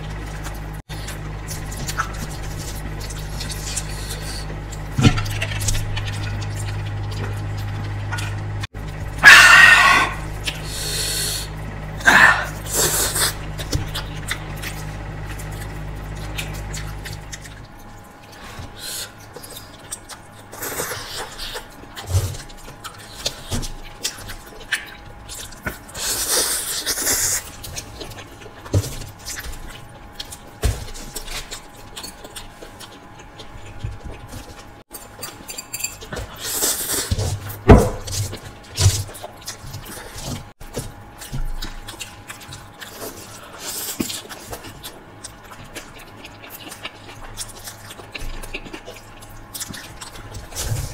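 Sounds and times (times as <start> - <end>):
noodles slurped and chewed: 0.4 - 37.3.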